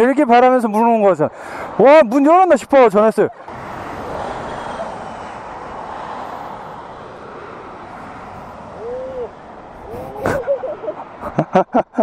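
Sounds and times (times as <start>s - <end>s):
highway traffic rushing past: 0.0s - 12.0s
rising and falling call: 8.3s - 11.0s.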